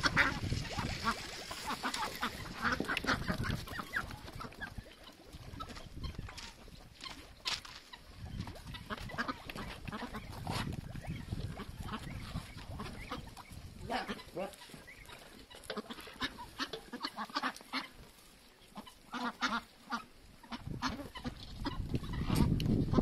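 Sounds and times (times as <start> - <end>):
ducks quacking: 0.0 - 23.0.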